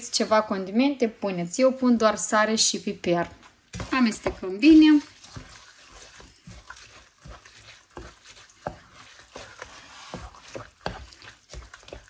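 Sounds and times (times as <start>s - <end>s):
thick filling being stirred: 2.0s - 12.0s
utensil scraping and knocking pan: 3.8s - 12.0s.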